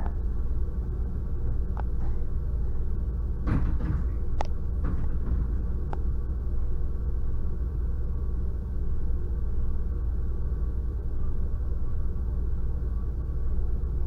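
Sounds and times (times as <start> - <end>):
low rumble in train carriage: 0.0 - 14.0
train doors closing clunks: 1.5 - 7.6.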